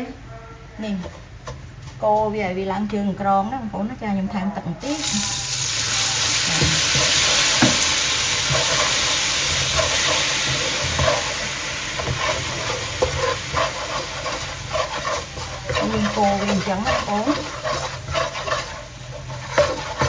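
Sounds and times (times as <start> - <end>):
sugar sizzling hiss in wok: 4.8 - 20.0
spatula scraping pan: 5.0 - 20.0.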